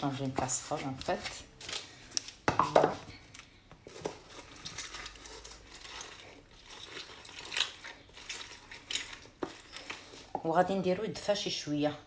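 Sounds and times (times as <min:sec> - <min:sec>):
lemon squishing on reamer: 0:03.8 - 0:10.6.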